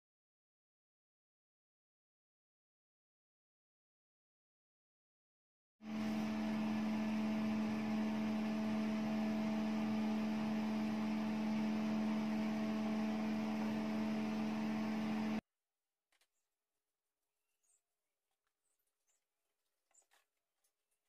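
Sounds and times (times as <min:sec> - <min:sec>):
small electric motor humming: 0:05.8 - 0:15.4.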